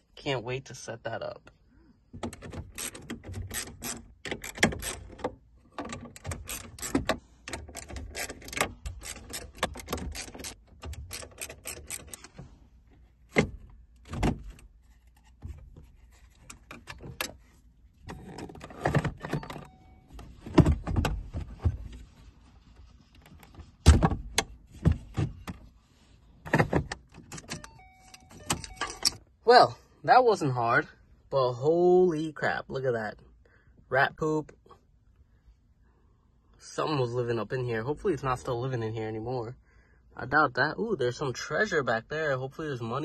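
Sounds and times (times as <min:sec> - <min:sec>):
plastic and metal clicks and rattles: 0:02.2 - 0:12.4.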